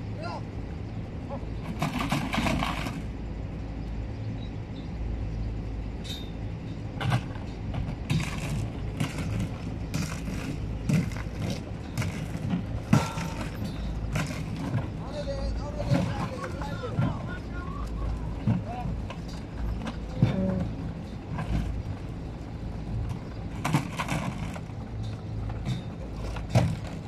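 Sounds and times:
truck engine idling: 0:00.0 - 0:27.0
cow hooves clattering on ramp: 0:06.7 - 0:27.0.

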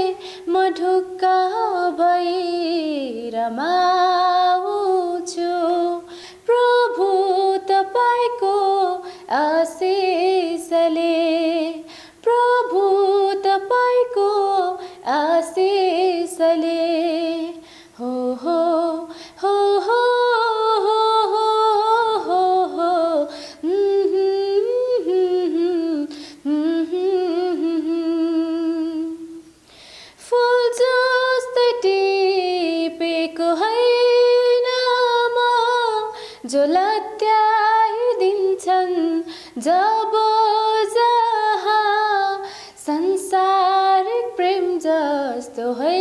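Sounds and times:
woman singing unaccompanied: 0:00.0 - 0:29.6, 0:30.2 - 0:46.0
breaths: 0:00.2 - 0:00.5, 0:06.1 - 0:06.5, 0:09.0 - 0:09.3, 0:11.8 - 0:12.2, 0:14.8 - 0:15.1, 0:17.6 - 0:18.0, 0:19.1 - 0:19.4, 0:23.3 - 0:23.6, 0:26.1 - 0:26.5, 0:29.6 - 0:30.2, 0:36.1 - 0:36.5, 0:39.2 - 0:39.6, 0:42.4 - 0:42.8.

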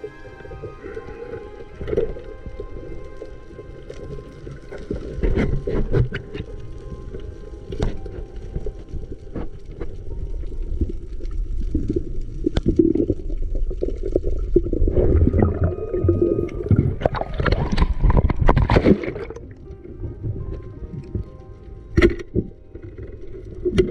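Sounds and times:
water gurgling and sloshing: 0:00.0 - 0:23.9.

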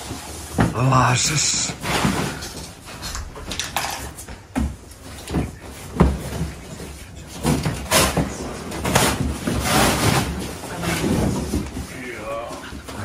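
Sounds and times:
cardboard scraping and rustling: 0:05.1 - 0:13.0.

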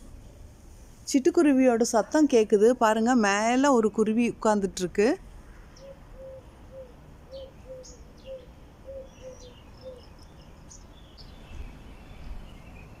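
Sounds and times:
sparrows chirping: 0:05.4 - 0:13.0.

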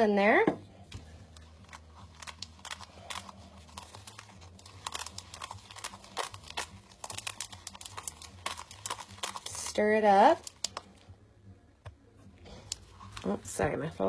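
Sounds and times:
plastic bag crinkling: 0:01.4 - 0:11.0
glitter pouring into plastic cup: 0:01.6 - 0:10.8.

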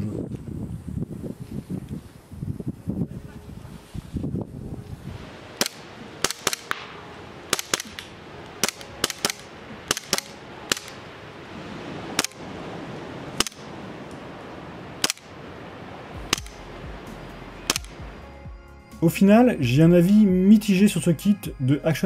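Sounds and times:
airsoft pistol shots: 0:05.6 - 0:06.9, 0:07.5 - 0:11.0, 0:17.7 - 0:18.0.

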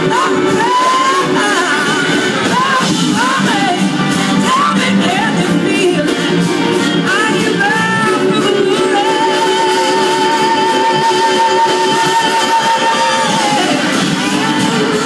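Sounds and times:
blues-rock band playing: 0:00.0 - 0:15.0
lead guitar line: 0:00.0 - 0:15.0.

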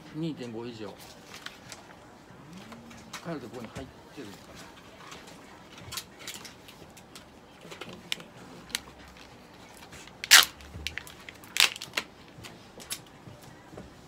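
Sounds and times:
packaging crinkling: 0:10.1 - 0:12.1.

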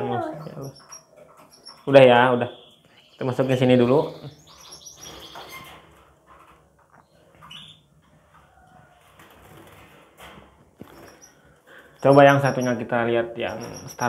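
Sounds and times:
bird wings fluttering against wire cage: 0:09.0 - 0:11.2.

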